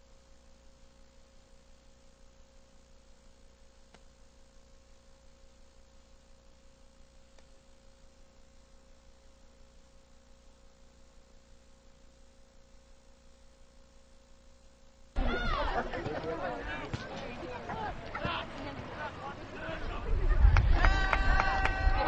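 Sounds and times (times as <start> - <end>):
faint ticks: 0.0 - 15.2
low hiss: 0.0 - 15.8
faint electrical hum: 0.0 - 22.0
thin steady whine: 0.0 - 22.0.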